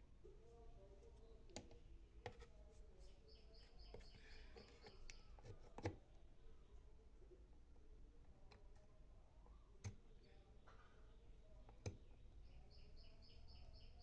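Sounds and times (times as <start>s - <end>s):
plastic charger clicks and knocks: 4.0s - 6.0s.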